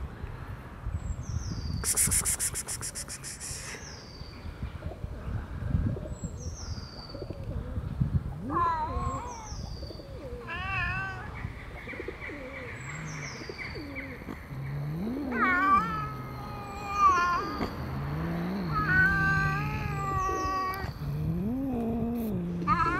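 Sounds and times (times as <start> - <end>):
cat yowling: 15.0 - 20.9, 21.5 - 22.9.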